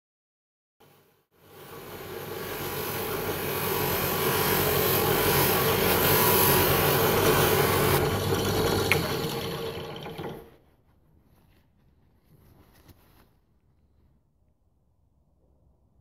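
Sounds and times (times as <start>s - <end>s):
hissing rub of polishing wheel: 1.4s - 8.0s
drill motor hum: 2.0s - 10.5s.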